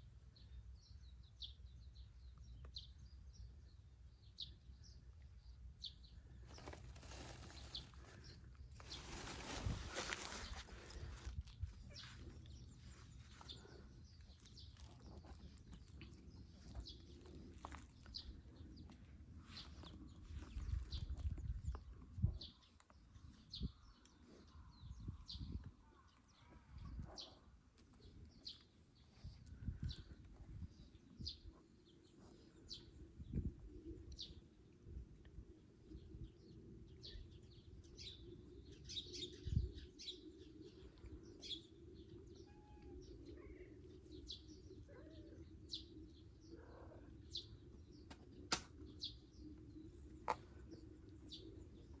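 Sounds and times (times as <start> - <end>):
small birds chirping: 0.0 - 52.0.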